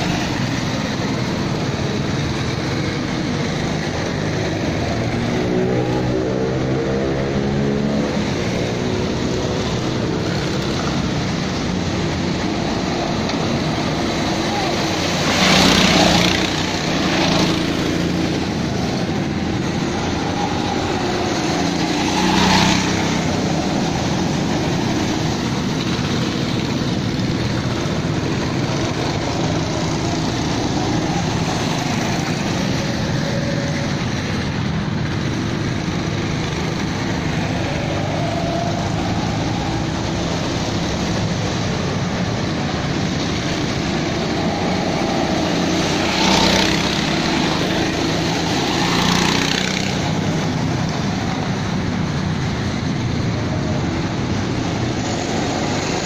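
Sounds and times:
go-kart engines passing: 0.0 - 56.0.

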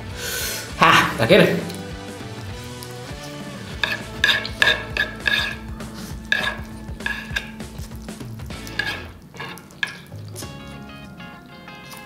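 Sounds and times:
chewing: 1.6 - 12.0
wet noodle slurping: 1.7 - 10.8.

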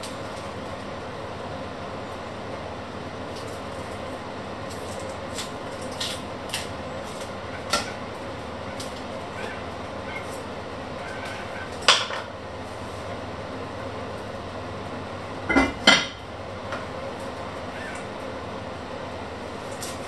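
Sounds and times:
steady hum: 0.0 - 20.0
onion skins crackling: 3.1 - 13.2, 19.3 - 20.0.

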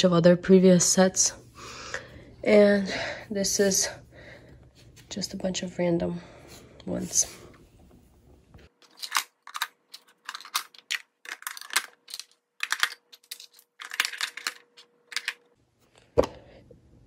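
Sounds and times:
wooden toys clacking: 8.9 - 15.4.

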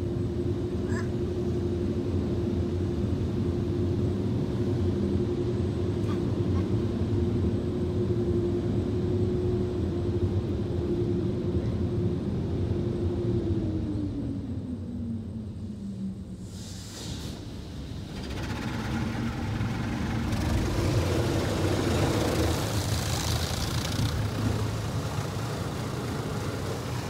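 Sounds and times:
constant hum: 0.0 - 27.0
car wash machinery rumbling: 12.2 - 27.0.

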